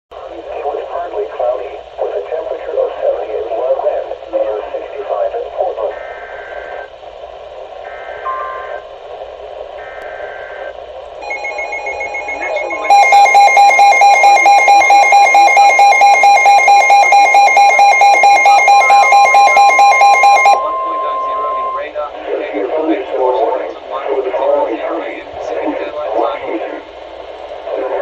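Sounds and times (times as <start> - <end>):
data tone bursts: 9.8 - 21.9
rapidly pulsing alarm beep: 9.8 - 21.9
steady warning tone: 9.8 - 26.7.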